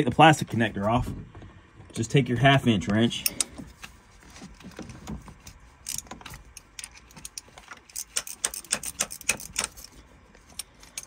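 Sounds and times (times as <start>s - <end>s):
wrench metal clicks: 5.8s - 11.0s.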